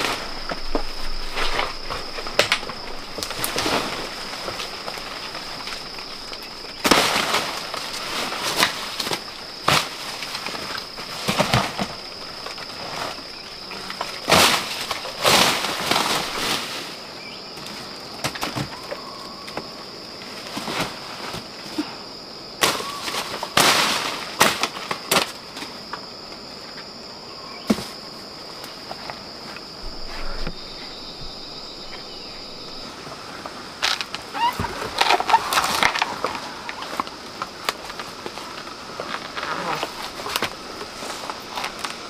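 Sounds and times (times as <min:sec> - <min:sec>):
high-pitched insect drone: 0:29.8 - 0:33.0.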